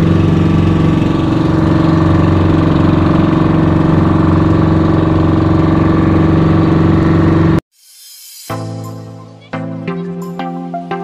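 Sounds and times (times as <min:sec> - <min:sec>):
boat engine droning: 0:00.0 - 0:07.6.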